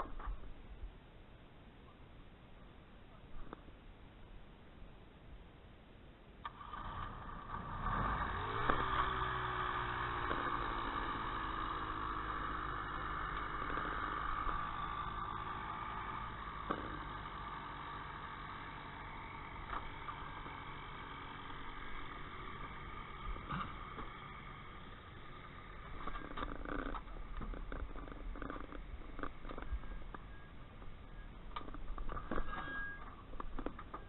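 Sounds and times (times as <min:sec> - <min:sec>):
ultralight aircraft engine starting: 0:06.4 - 0:30.5.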